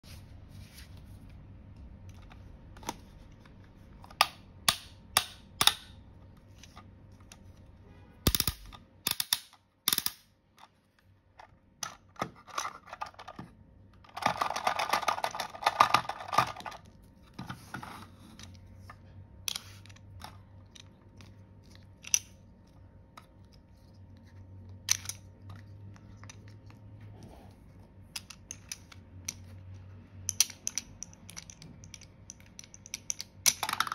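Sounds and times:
plastic toy pieces clicking: 8.3s - 10.3s, 14.1s - 16.8s, 30.3s - 33.9s.

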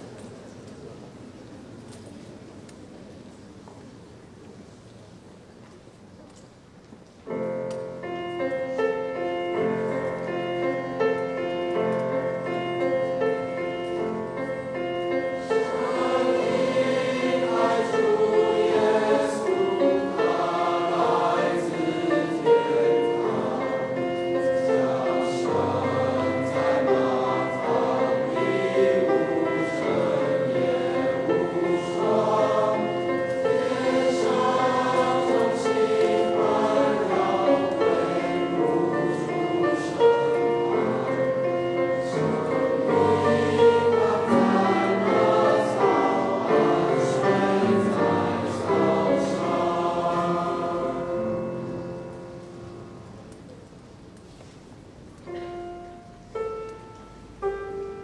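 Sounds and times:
mixed choir singing a carol: 8.5s - 53.0s.

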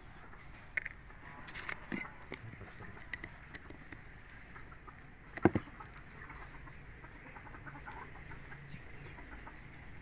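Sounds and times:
light handling ticks and clicks: 0.6s - 4.4s.

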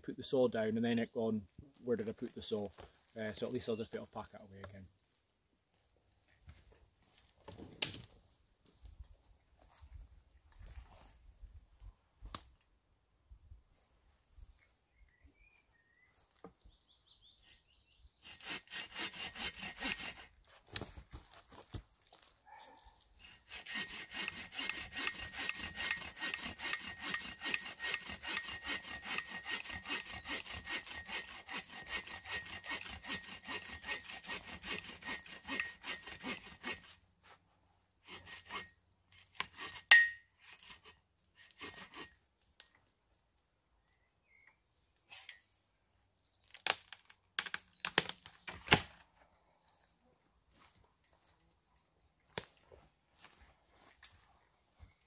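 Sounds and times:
bow saw cutting wood: 17.4s - 20.4s, 23.2s - 37.0s, 38.0s - 42.2s
wood cracking: 46.4s - 49.0s.

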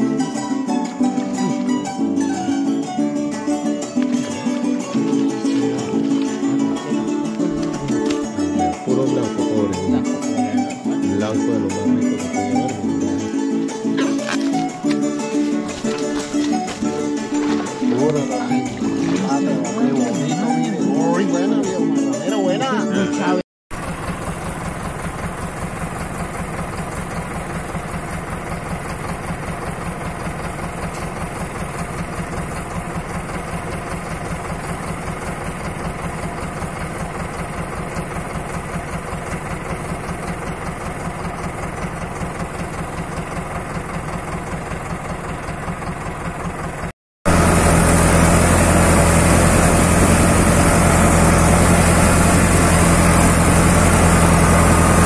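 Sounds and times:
engine running: 0.0s - 55.0s.

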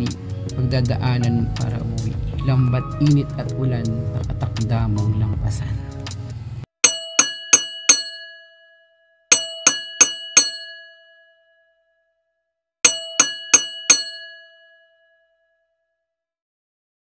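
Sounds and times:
bell dings: 6.8s - 11.8s, 12.9s - 15.6s.

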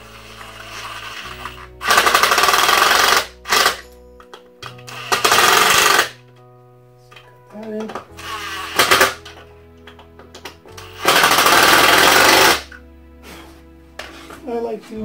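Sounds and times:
impact driver motor spinning: 0.0s - 3.8s, 4.9s - 6.2s, 10.8s - 12.7s
impact driver hammering: 1.9s - 3.8s, 5.1s - 6.2s, 8.7s - 9.3s, 11.0s - 12.6s.

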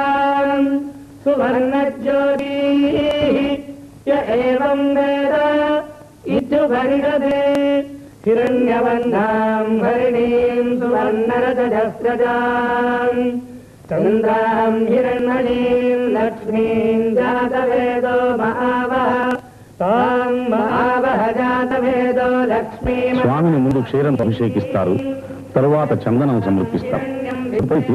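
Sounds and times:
mantras chanted on held notes: 0.0s - 27.9s
short breaths: 13.5s - 13.9s, 19.4s - 19.8s.

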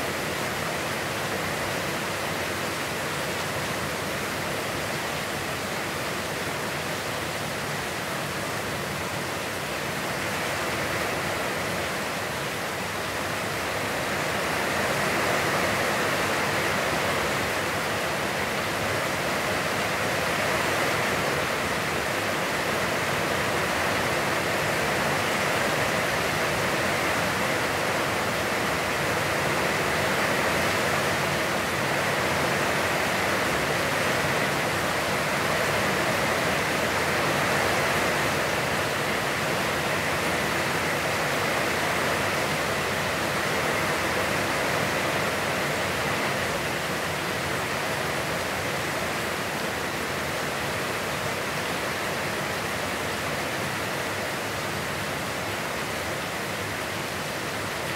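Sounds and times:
heavy rain hissing: 0.0s - 57.9s.

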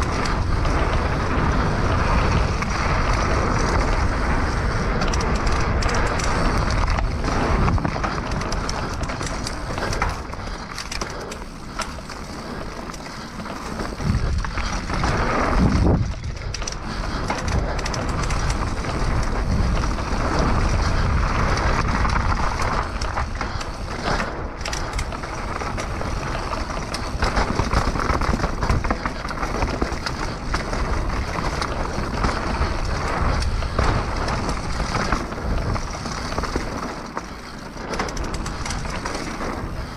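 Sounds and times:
bike clattering and rattling: 0.0s - 39.9s
tyres crunching over dirt: 0.0s - 39.9s
wind on microphone: 13.6s - 36.8s.

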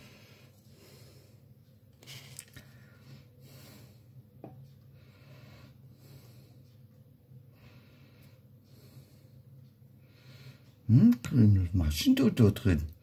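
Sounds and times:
faint breathing: 0.0s - 10.8s
low steady hum: 0.0s - 13.0s.

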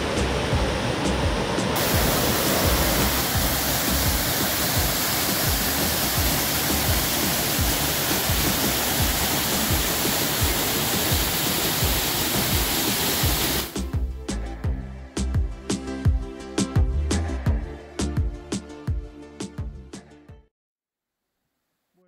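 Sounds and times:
waterfall rushing: 0.0s - 13.8s.

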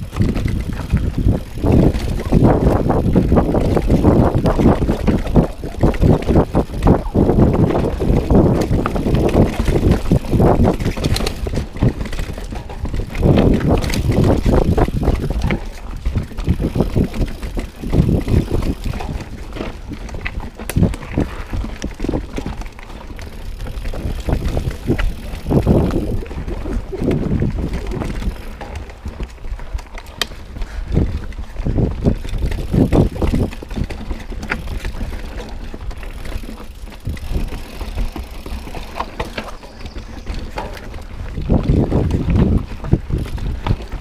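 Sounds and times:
bike rattling and knocking: 0.0s - 44.0s
bike tyres crunching over rocks: 0.0s - 44.0s
wind on microphone: 0.0s - 44.0s.

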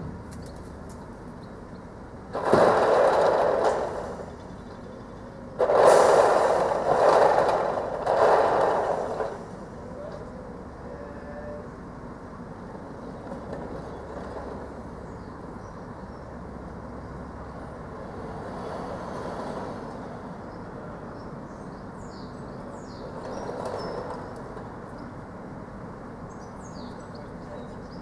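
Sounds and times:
van being loaded: 2.1s - 16.4s.

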